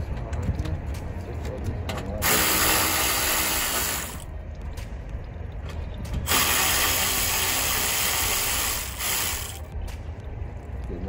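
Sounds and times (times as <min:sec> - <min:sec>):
power ratchet spinning bolts: 0:02.2 - 0:04.2, 0:06.3 - 0:09.6.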